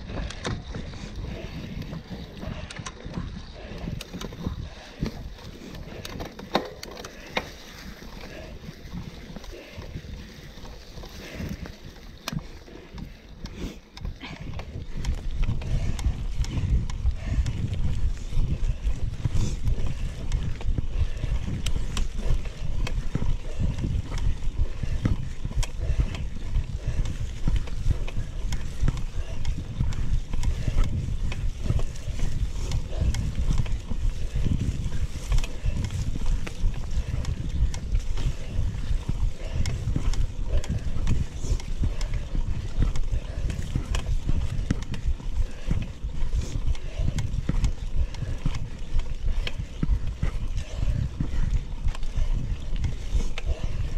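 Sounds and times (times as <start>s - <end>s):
bike knocks and rattles: 0.0s - 10.2s
bike tyres rumbling on trail: 0.0s - 53.9s
wind buffeting microphone: 0.0s - 53.9s.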